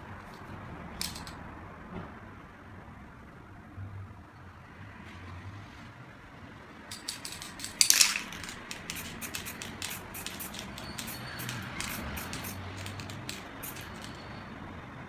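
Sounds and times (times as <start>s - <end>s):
spray paint can hissing: 6.9s - 14.4s.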